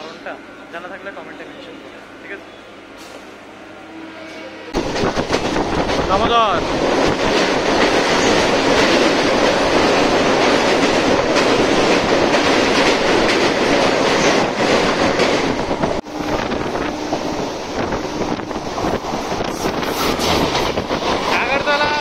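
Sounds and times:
train rumbling at speed: 0.0s - 22.0s
wheels clacking on rail joints: 4.8s - 16.0s.

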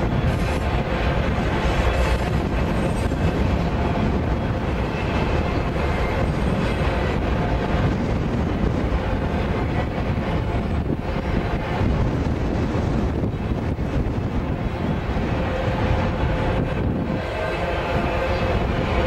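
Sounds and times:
freight train wheels on rails: 0.0s - 19.0s.

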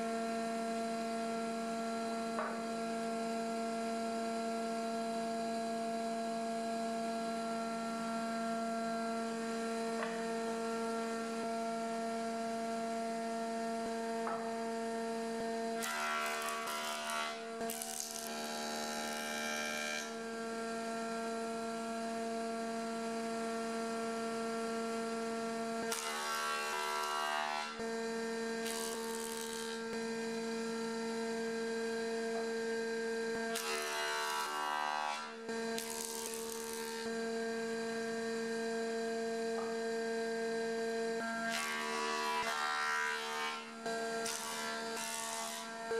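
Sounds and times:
board being cut: 15.7s - 20.2s, 25.8s - 27.8s, 28.6s - 30.0s, 33.4s - 37.2s, 41.2s - 45.9s
jointer motor hum: 25.8s - 30.8s, 33.4s - 37.2s.

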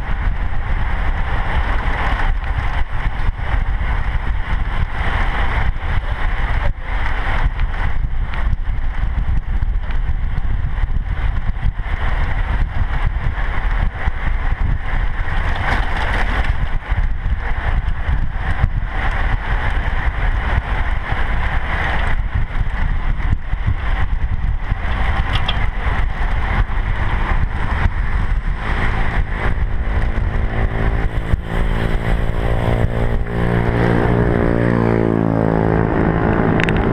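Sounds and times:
wind buffeting microphone: 0.0s - 36.9s
humming tone rising in pitch: 28.6s - 36.9s.

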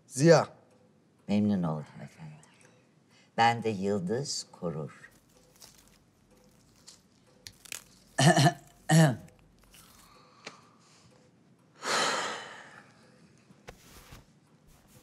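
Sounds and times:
person burping: 8.1s - 9.4s.

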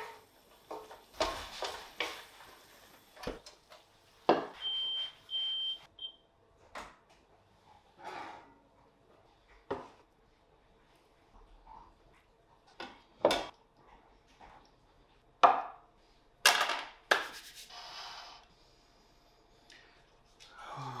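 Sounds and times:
soft brushing rub: 17.2s - 17.8s.

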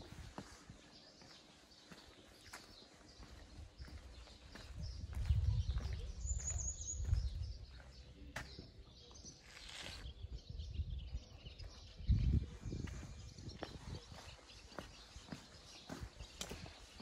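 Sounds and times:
footsteps on cobblestones: 0.0s - 9.3s, 12.8s - 17.0s
faint outdoor background: 0.0s - 17.0s
bird chirp: 0.4s - 17.0s.

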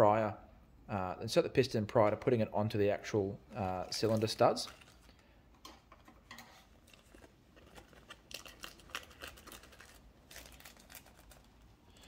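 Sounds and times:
plastic packaging rustling: 3.7s - 5.3s, 6.0s - 12.0s.

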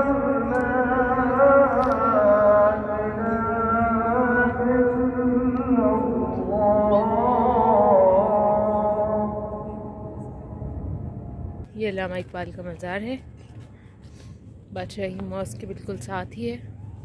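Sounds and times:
person chanting: 0.0s - 10.7s.

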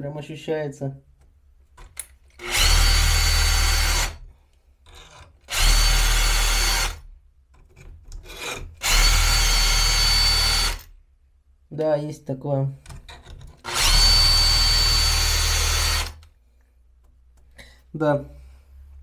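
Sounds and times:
drill motor whine: 2.4s - 4.2s, 5.5s - 7.0s, 8.8s - 10.9s, 13.7s - 16.2s
file grinding on saw chain: 8.2s - 10.8s.

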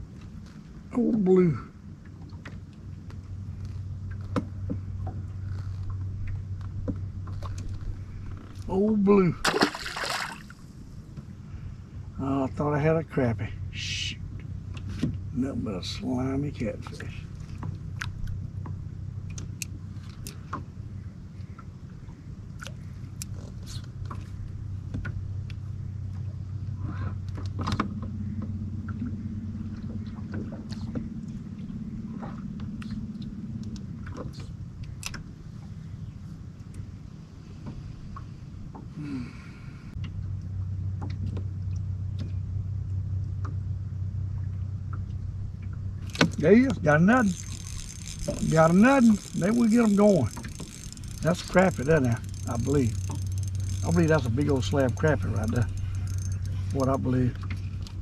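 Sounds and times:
steady low hum: 0.0s - 58.0s
light clicks and ticks: 44.9s - 58.0s.

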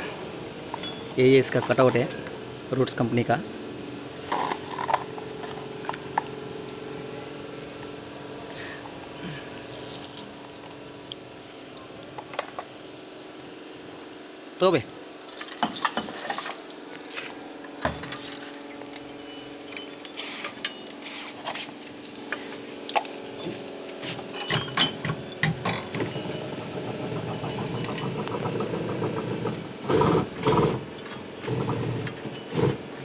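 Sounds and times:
engine hum: 0.0s - 33.0s
metal clinks and knocks: 0.7s - 2.2s, 15.3s - 17.2s, 17.8s - 21.0s, 23.0s - 32.8s.

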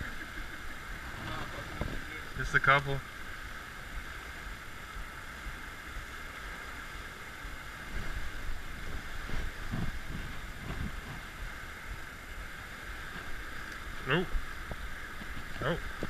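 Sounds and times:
low muffled knocks and rumbles: 0.0s - 2.2s, 7.0s - 16.0s
water rushing through dam outflow: 0.0s - 16.0s.

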